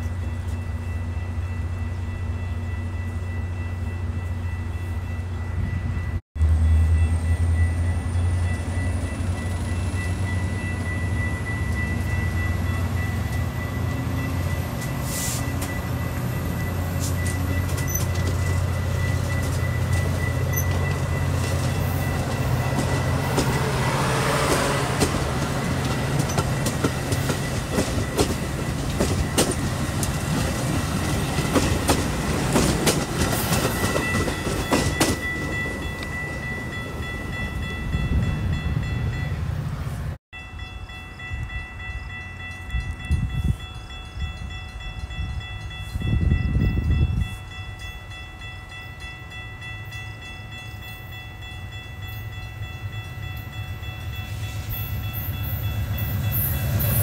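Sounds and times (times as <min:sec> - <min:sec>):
diesel train rumbling: 0:00.0 - 0:57.0
train wheels clicking over rail joints: 0:17.0 - 0:36.5.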